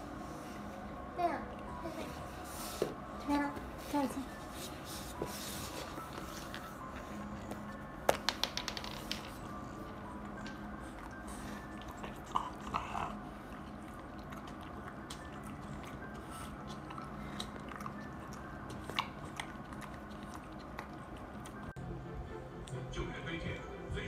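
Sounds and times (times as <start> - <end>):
dog chewing its paws: 9.2 - 21.8.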